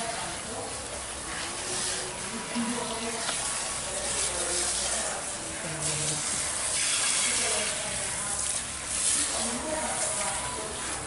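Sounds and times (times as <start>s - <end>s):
water spray hissing: 1.5s - 10.4s.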